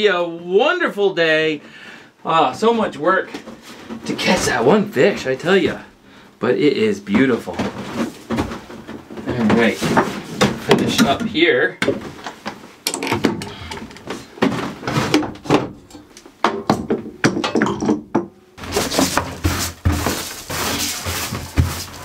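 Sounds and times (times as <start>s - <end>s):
wooden knocks and thuds: 7.2s - 22.0s.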